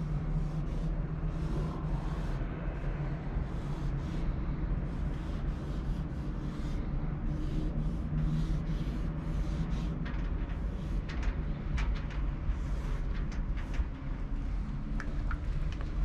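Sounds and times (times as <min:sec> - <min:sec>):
steady low rumble: 0:00.0 - 0:16.0
paint marker scratching on panel: 0:03.4 - 0:11.5.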